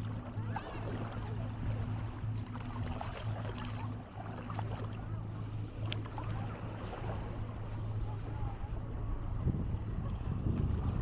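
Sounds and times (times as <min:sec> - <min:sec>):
low engine hum: 0:00.0 - 0:11.0
faint distant voices: 0:04.2 - 0:11.0.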